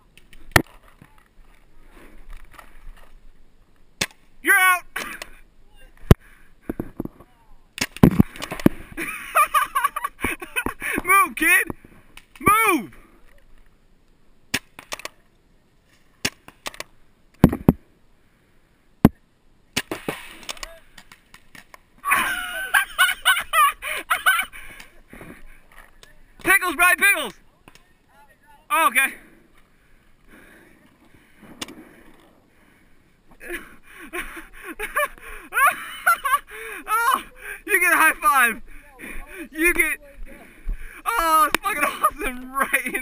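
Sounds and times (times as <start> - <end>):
people shouting and calling: 4.4 - 6.1, 12.4 - 13.0, 36.5 - 40.0, 41.0 - 43.0
paintball gun pops: 7.8 - 8.8.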